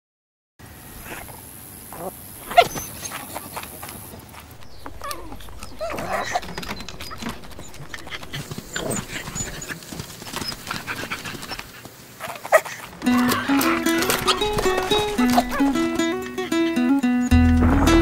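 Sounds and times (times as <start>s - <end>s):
dogs making short calls: 1.0s - 16.5s
dog snuffling clicks: 2.5s - 15.9s.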